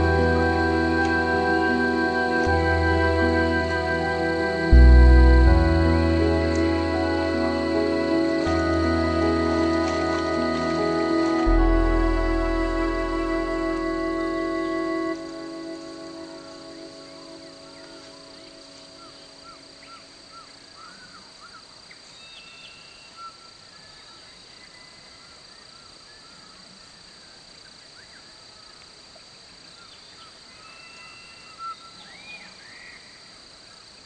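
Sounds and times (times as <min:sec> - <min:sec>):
closing music: 0:00.0 - 0:20.2
high-pitched insect drone: 0:00.0 - 0:21.6.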